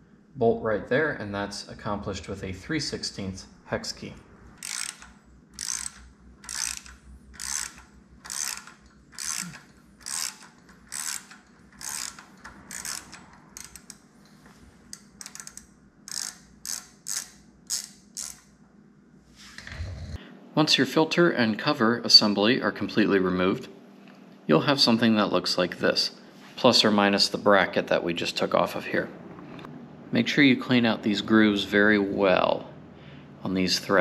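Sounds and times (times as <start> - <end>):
hand ratchet clicking: 4.6 - 14.0, 14.9 - 18.5.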